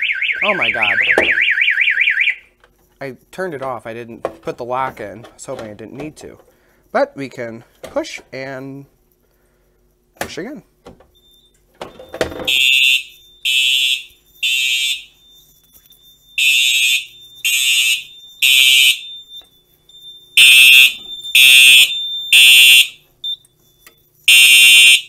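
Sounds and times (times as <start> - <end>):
steady high tone: 0.0 - 1.6
fire alarm horn blasts: 0.0 - 2.6, 12.4 - 23.4, 24.1 - 25.0.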